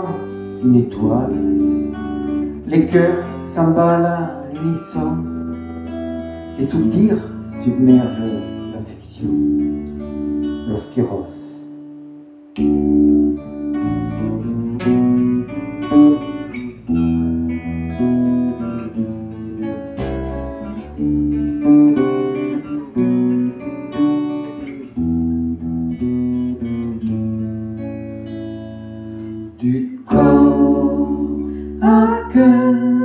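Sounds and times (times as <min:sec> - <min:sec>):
plucked acoustic guitar notes: 0:00.0 - 0:33.0
bass guitar held notes: 0:12.4 - 0:33.0.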